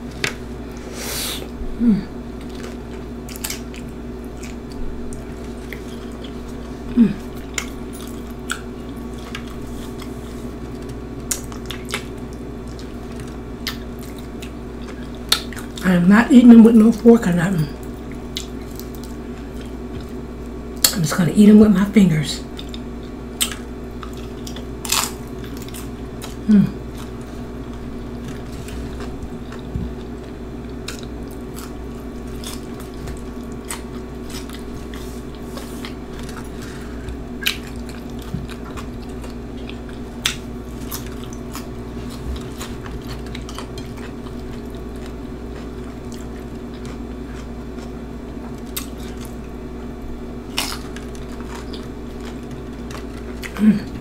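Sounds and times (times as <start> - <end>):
person chewing: 0.0 - 15.8, 17.8 - 20.9, 22.5 - 49.6, 50.4 - 54.0
low background hum: 0.0 - 54.0
chips crunching when bitten: 22.6 - 49.6, 50.5 - 53.6.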